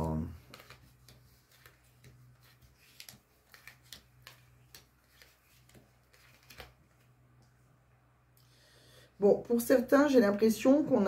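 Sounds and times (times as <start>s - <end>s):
low steady hum: 0.0s - 11.0s
cards clicking on mat: 0.4s - 6.8s.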